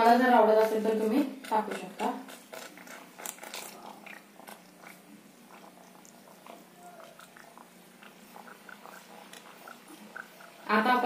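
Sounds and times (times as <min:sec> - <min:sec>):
spatula squelching gravy in pan: 0:00.0 - 0:11.0.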